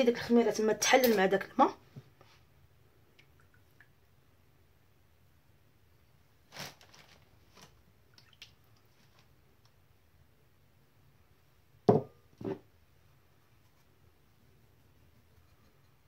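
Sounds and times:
liquid splashing into bowl: 8.1s - 8.7s.

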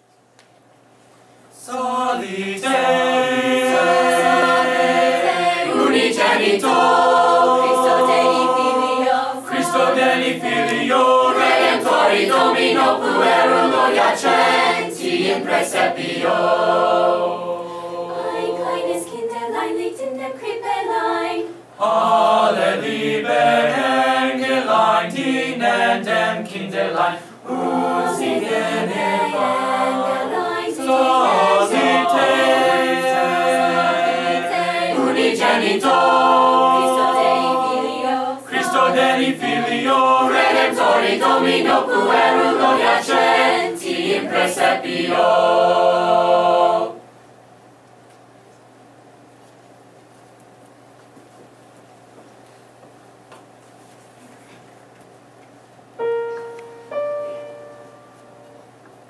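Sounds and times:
mixed choir singing a cappella: 1.6s - 47.1s.

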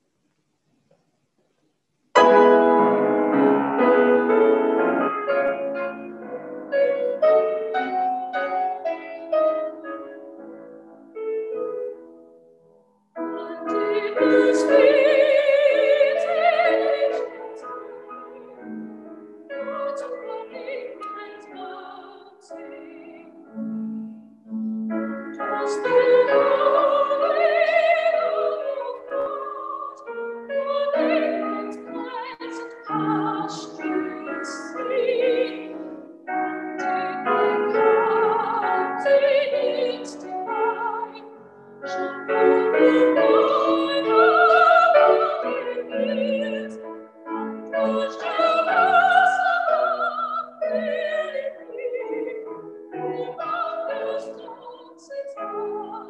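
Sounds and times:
woman singing a hymn: 13.2s - 18.8s, 19.5s - 23.4s, 25.4s - 35.9s, 36.5s - 56.0s.

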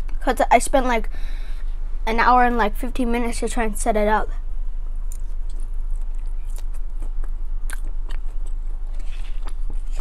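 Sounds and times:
steady low hum: 0.0s - 10.0s
chewing with wet mouth clicks: 5.1s - 10.0s.

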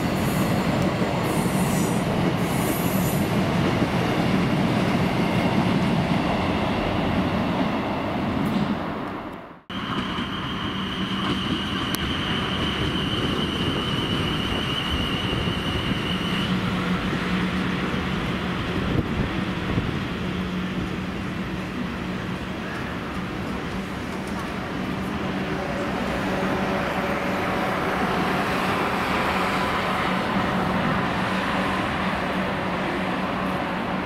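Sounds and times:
train running with low hum: 0.0s - 34.0s.

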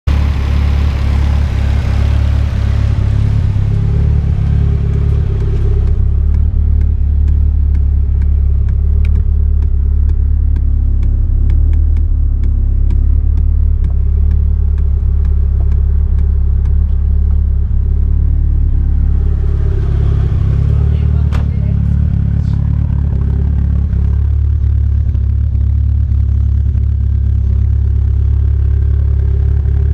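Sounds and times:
car engine idling: 0.0s - 29.9s
faint regular ticking: 4.5s - 19.0s.

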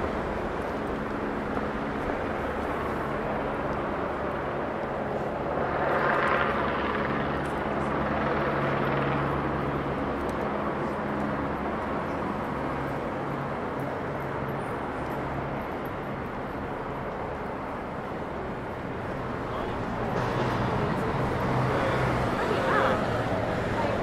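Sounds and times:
traffic engine hum: 0.0s - 24.0s
vehicle passing: 19.0s - 24.0s.

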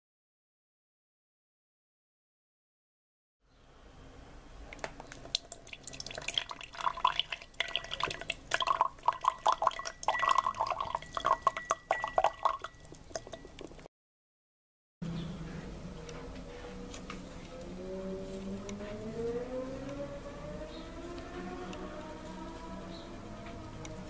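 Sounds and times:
water pouring into glass jar: 4.8s - 13.8s.

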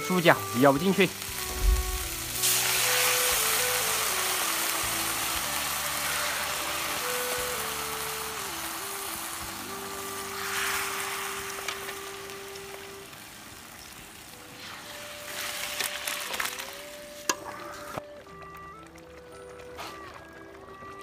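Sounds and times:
food sizzling in a wok: 0.0s - 18.0s
soft background music: 0.0s - 21.0s.

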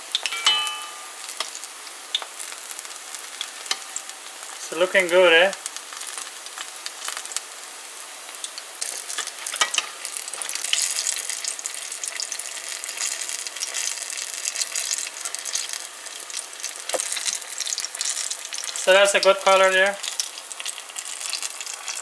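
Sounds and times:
food deep-frying in oil: 0.0s - 22.0s.

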